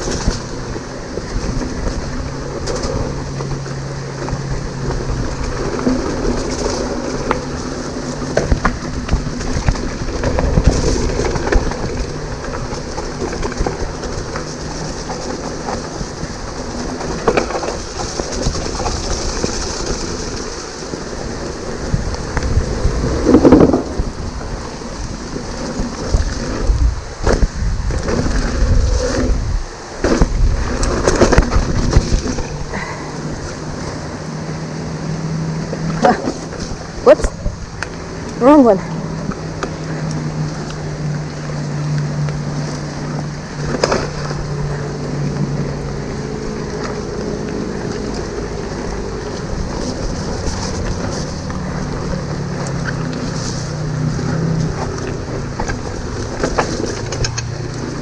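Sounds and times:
bike knocks and rattles: 0:00.0 - 0:34.3
tyre rumble on dirt: 0:00.0 - 0:58.0
wind noise: 0:00.0 - 0:58.0.

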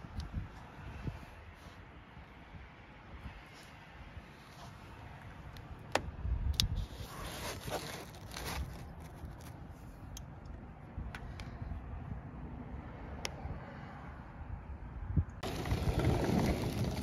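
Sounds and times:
snow crunching and scraping: 0:06.8 - 0:09.5, 0:15.4 - 0:17.0
rumbly handling noise: 0:15.4 - 0:17.0.

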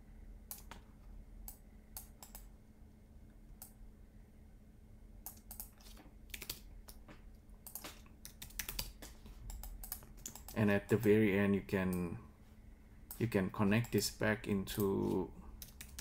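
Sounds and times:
faint low hum: 0:00.0 - 0:16.0
keyboard and mouse clicks: 0:00.5 - 0:02.5, 0:05.2 - 0:11.1, 0:15.6 - 0:16.0.

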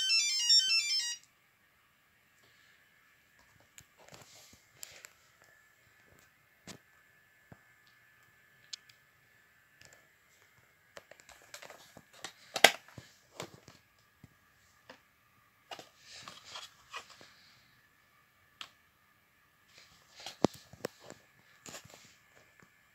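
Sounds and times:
faint steady high tone: 0:00.0 - 0:01.4.

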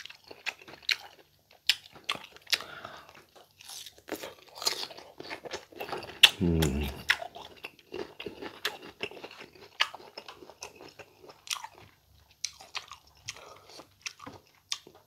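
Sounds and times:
crunchy chewing: 0:00.0 - 0:15.0
wet mouth clicks: 0:06.2 - 0:07.2.

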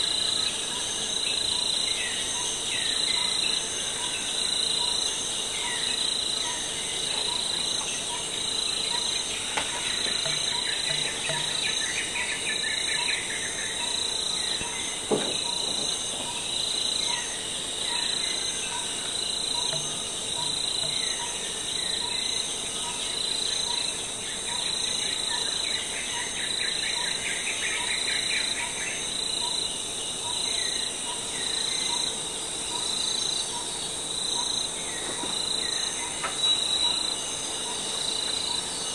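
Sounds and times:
insects trilling: 0:00.0 - 0:38.9
bird-like chirping: 0:05.6 - 0:23.9.

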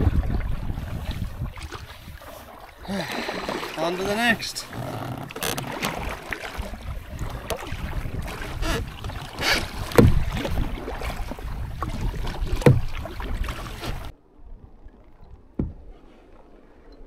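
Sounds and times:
wind buffeting microphone: 0:00.0 - 0:03.6, 0:05.8 - 0:16.0
paddle strokes splashing: 0:00.0 - 0:17.0
low thumps: 0:08.6 - 0:10.6, 0:12.5 - 0:13.0, 0:15.5 - 0:15.9.

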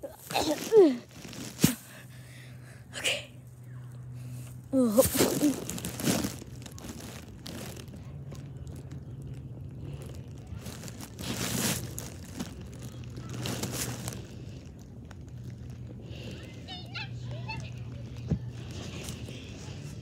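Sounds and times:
fabric rustling on microphone: 0:00.0 - 0:02.1, 0:04.8 - 0:16.0.

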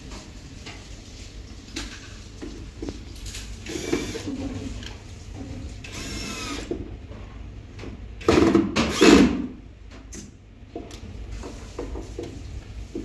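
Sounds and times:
cordless drill driving screws: 0:03.7 - 0:04.3, 0:05.8 - 0:06.7, 0:08.9 - 0:09.3.

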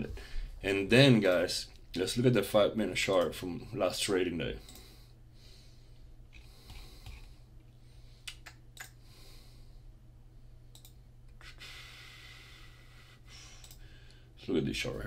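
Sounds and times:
soft breathing: 0:04.6 - 0:10.0, 0:10.9 - 0:14.4
computer mouse clicks: 0:10.7 - 0:11.0, 0:13.6 - 0:13.8.

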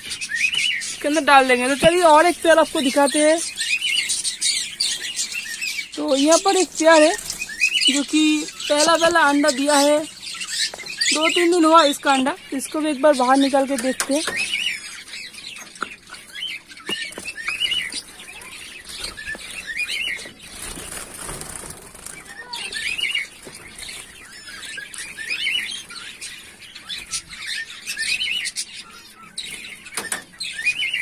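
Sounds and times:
wings fluttering: 0:00.0 - 0:12.0, 0:16.0 - 0:27.4
finches chirping: 0:00.0 - 0:31.0.

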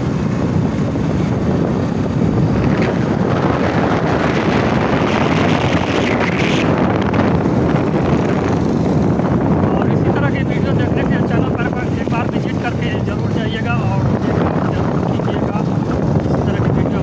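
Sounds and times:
motorcycle engine and tyre noise: 0:00.0 - 0:17.0
wind buffeting microphone: 0:00.0 - 0:17.0.

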